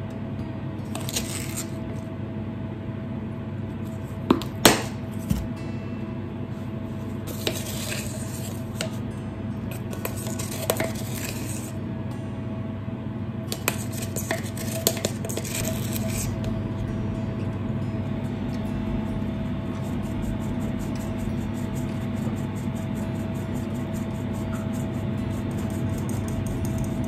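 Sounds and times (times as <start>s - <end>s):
steady low hum: 0.0s - 27.0s
metal spoon clinking and scraping: 13.5s - 16.4s.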